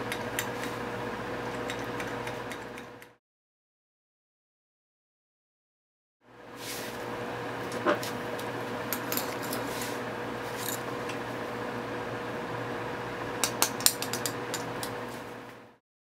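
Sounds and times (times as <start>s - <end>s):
steady background hum: 0.0s - 3.2s, 6.2s - 15.8s.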